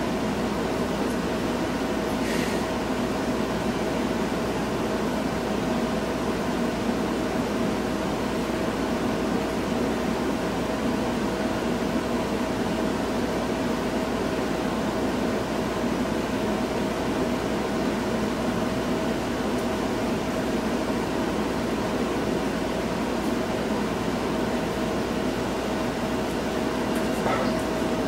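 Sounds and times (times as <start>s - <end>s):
constant low hum: 0.0s - 28.0s
mechanical fan whir: 0.0s - 28.0s.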